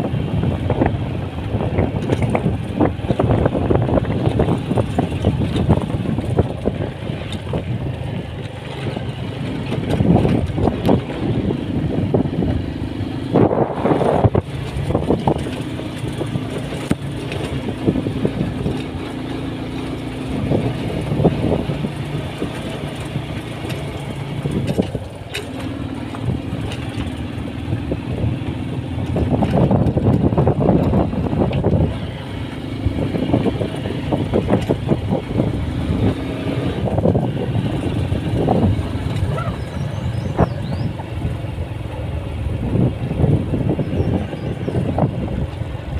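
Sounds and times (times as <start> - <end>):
road rumble: 0.0 - 45.9
vehicle engine running: 0.0 - 45.9
wind noise: 0.0 - 45.9.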